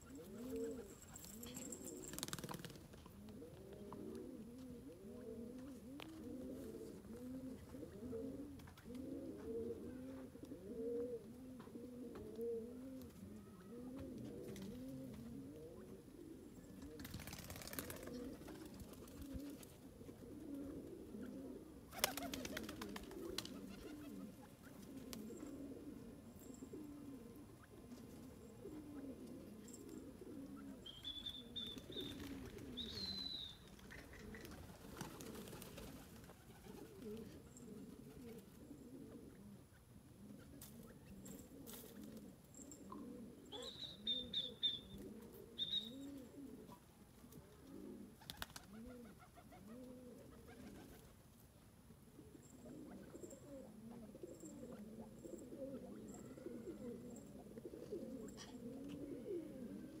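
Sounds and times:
doves cooing: 0:00.0 - 0:51.1, 0:52.1 - 1:00.0
small bird chirping: 0:30.8 - 0:34.2, 0:43.5 - 0:45.0, 0:45.6 - 0:46.1.

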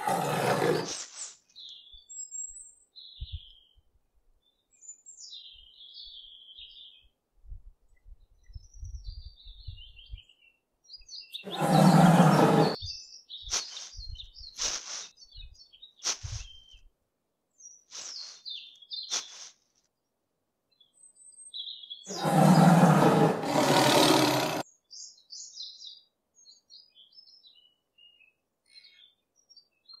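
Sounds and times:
lion roaring: 0:00.0 - 0:00.9, 0:11.4 - 0:12.8, 0:22.1 - 0:24.6
birds chirping: 0:00.0 - 0:01.0, 0:08.5 - 0:16.8, 0:21.6 - 0:27.2.

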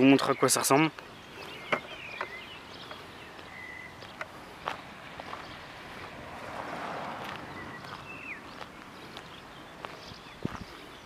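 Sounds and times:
footsteps on rough concrete: 0:00.0 - 0:11.0.

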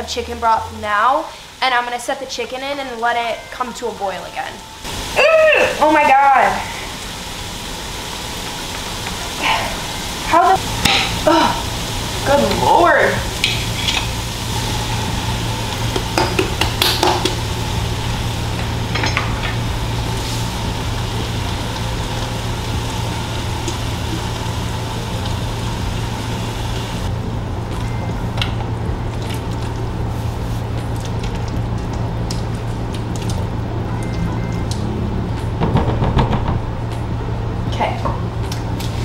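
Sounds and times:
food sizzling in a pot: 0:00.6 - 0:27.1.

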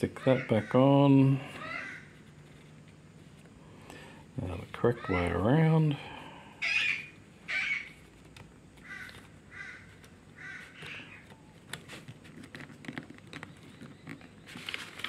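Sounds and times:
bird calling: 0:00.0 - 0:02.3, 0:04.8 - 0:08.1, 0:08.8 - 0:11.7.

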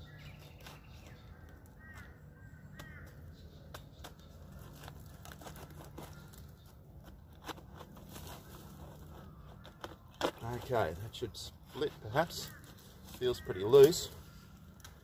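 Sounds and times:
bird calling: 0:00.0 - 0:07.6, 0:08.2 - 0:14.7
rotten wood cracking and crumbling: 0:04.5 - 0:15.0.

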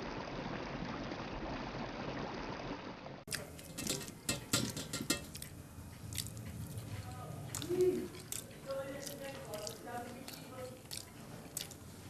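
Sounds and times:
wet eating mouth sounds: 0:03.3 - 0:12.0
lip smacks: 0:05.3 - 0:11.8.

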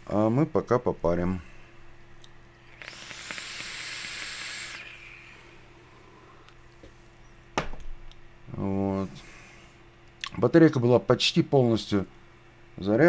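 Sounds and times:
vape draw hiss: 0:02.6 - 0:05.6.

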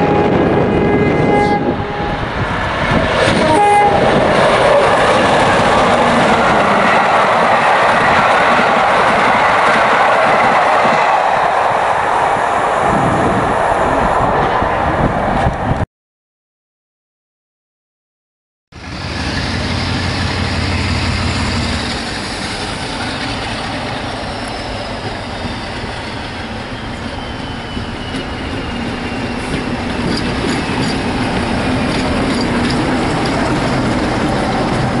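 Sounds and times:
diesel locomotive engine drone: 0:00.0 - 0:15.8, 0:18.7 - 0:35.0
wheels clicking over rail joints: 0:28.1 - 0:35.0.

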